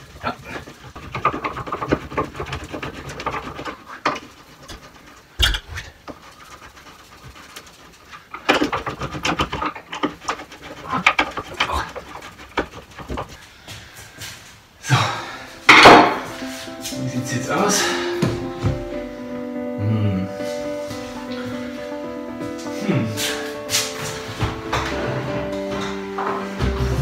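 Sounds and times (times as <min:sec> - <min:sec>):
scraping and clicking on wood: 0:00.0 - 0:14.6, 0:20.9 - 0:27.0.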